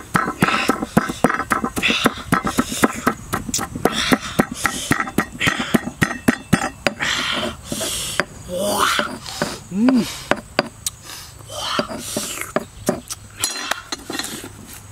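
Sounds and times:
pestle pounding in stone mortar: 0.0 - 8.3, 9.0 - 10.8
gritty scraping: 0.0 - 14.9.

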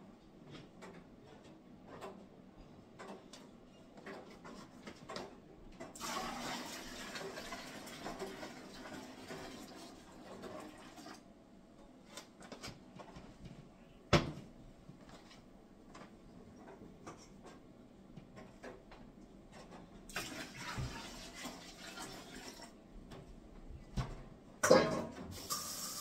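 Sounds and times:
hot water pouring into bucket: 6.0 - 11.2, 20.1 - 22.8, 25.3 - 26.0.

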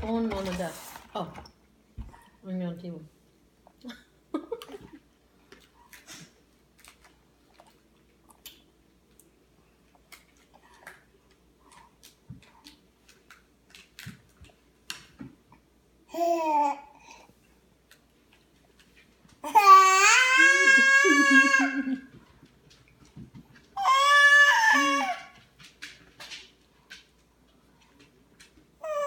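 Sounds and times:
toddler crunching biscuit sticks: 5.4 - 9.3, 9.9 - 15.1.

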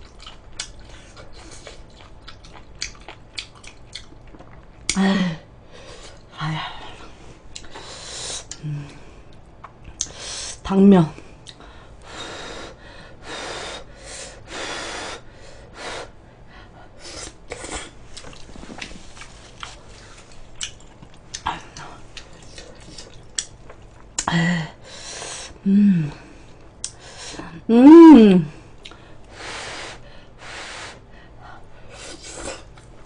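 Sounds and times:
person chewing: 0.0 - 5.0, 17.2 - 24.3
nose breathing: 11.7 - 16.2
short vocal sounds: 27.7 - 28.5.

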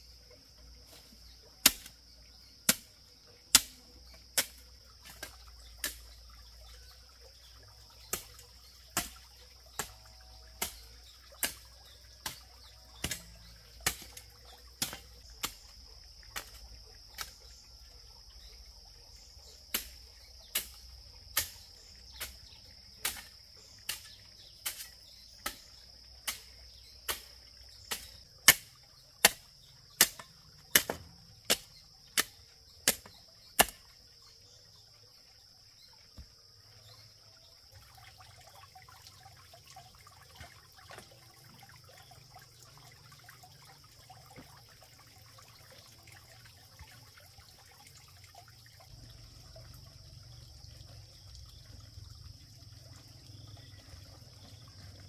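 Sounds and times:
hand tool striking: 30.0 - 33.8.

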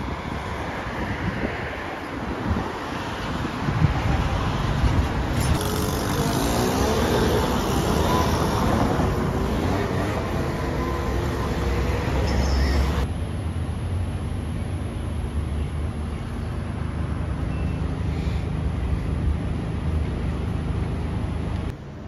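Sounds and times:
road traffic rumble: 0.0 - 22.0
vehicle engine passing by: 5.3 - 13.1.

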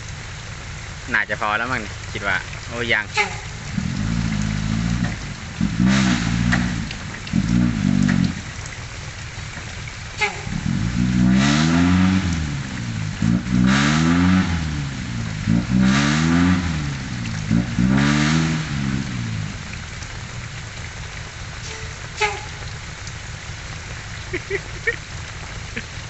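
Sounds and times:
diesel truck engine revving: 2.9 - 8.5, 10.5 - 20.0.

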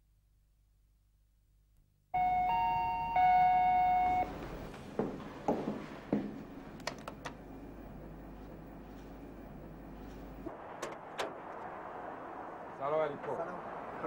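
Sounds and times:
electronic doorbell chime: 2.2 - 4.3.

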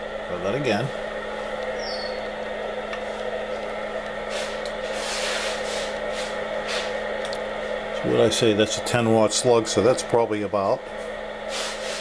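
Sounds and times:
electrical hum with fan whir: 0.0 - 12.0
hiss and rustling: 4.3 - 7.0, 11.0 - 12.0.

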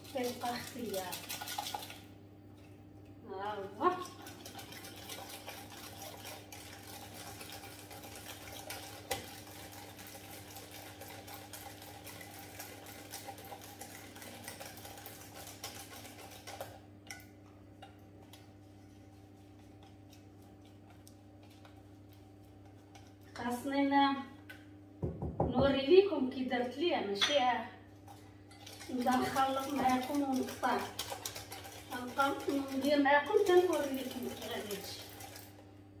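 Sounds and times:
whisk beating in metal saucepan: 0.0 - 2.0, 3.8 - 23.6, 28.1 - 35.5.

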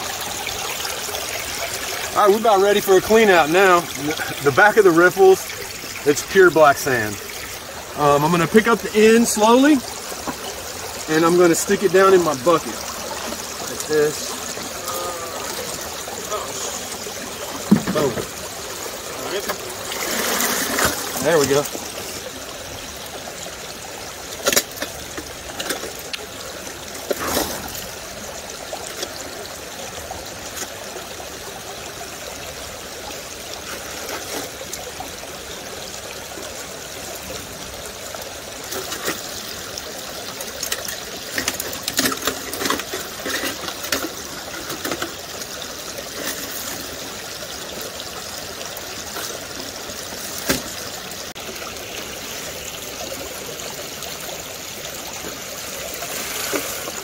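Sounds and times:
creek water running: 0.0 - 57.0.

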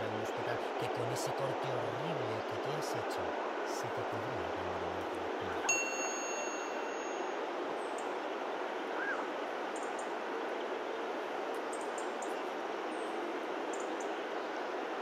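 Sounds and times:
outdoor background hiss: 0.0 - 15.0.

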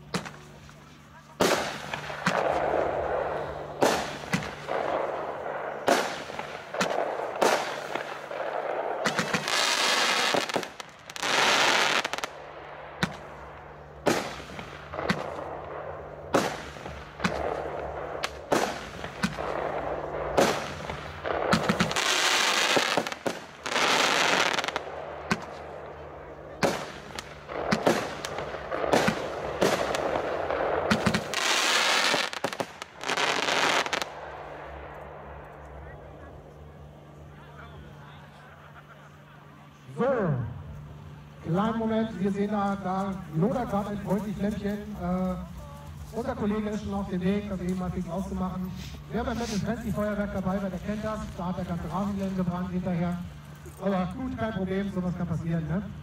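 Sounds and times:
fireworks hissing: 0.0 - 34.8, 41.7 - 53.8
fireworks bangs: 0.0 - 38.6.

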